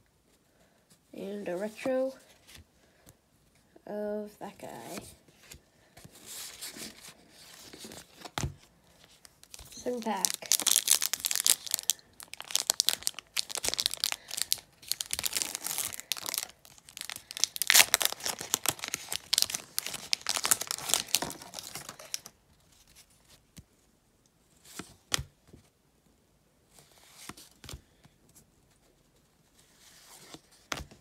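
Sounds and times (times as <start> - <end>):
wrapper tearing and crinkling: 9.2 - 22.3.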